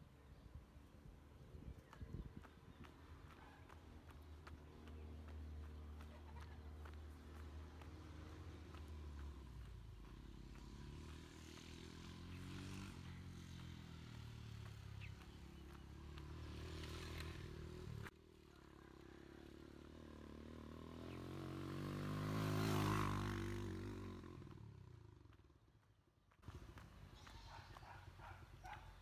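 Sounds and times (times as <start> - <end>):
vehicle passing by: 2.1 - 25.4
vehicle engine running: 2.4 - 18.1.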